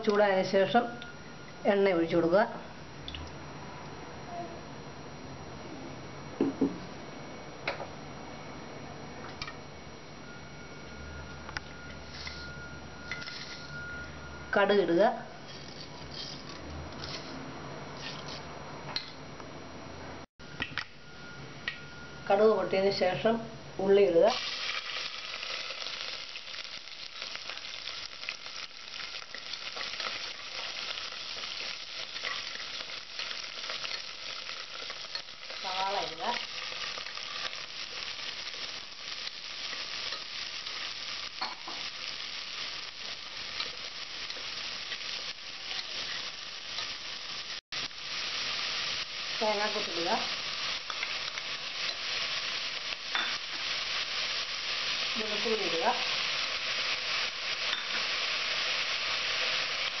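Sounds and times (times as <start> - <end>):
onions sizzling in hot oil: 12.0 - 13.9, 22.3 - 60.0.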